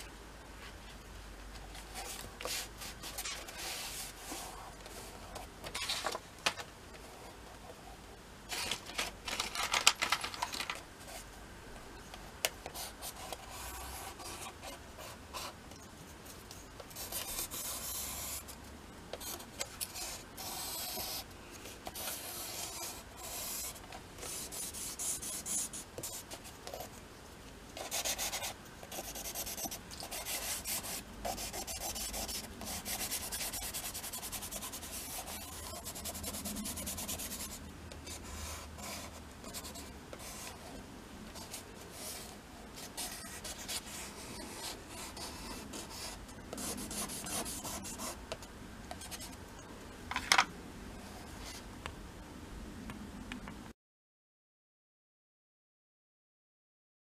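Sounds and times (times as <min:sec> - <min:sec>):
drawing stick scratching paper: 0:19.1 - 0:21.2, 0:27.8 - 0:40.6, 0:41.4 - 0:48.2.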